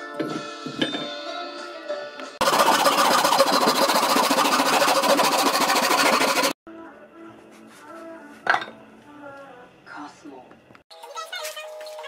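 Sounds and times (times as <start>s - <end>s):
hand saw rasping through wood: 2.4s - 6.6s
faint music: 6.7s - 12.0s.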